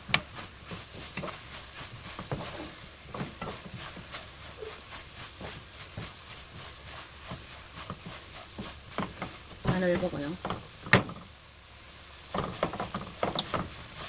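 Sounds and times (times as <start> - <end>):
wooden spatula scraping a pan: 0.0 - 14.0.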